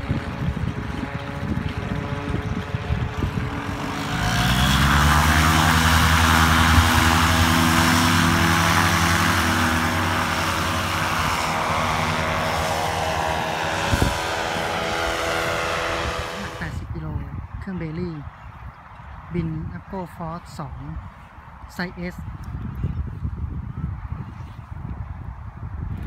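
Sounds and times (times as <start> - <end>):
paramotor engine at full throttle: 0.0 - 17.0
wind buffeting microphone: 0.0 - 26.0.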